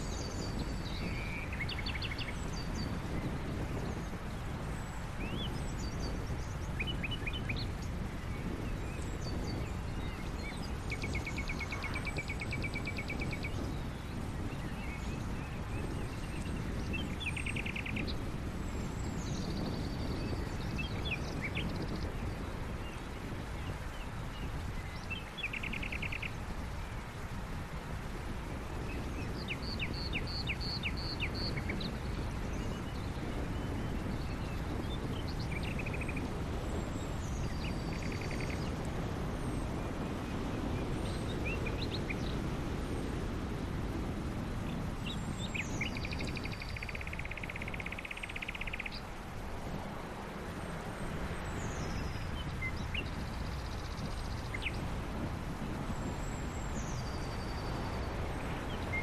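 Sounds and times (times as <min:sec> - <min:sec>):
birds chirping and trilling: 0:00.0 - 0:18.2, 0:18.9 - 0:26.4, 0:28.8 - 0:38.8, 0:44.6 - 0:49.2.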